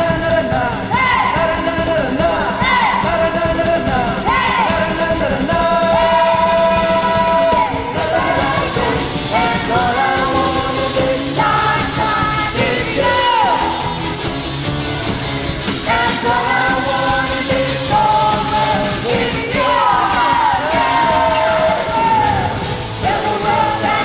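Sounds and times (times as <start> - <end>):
singer holding long notes: 0.0 - 14.1
worship band playing: 0.0 - 24.0.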